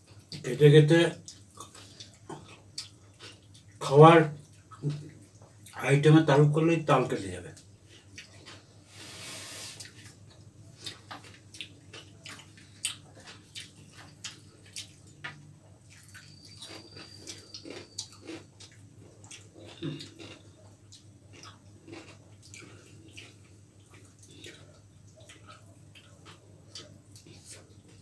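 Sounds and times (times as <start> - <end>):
people chewing: 1.2 - 3.8, 7.8 - 28.0
short hiss: 8.9 - 9.9.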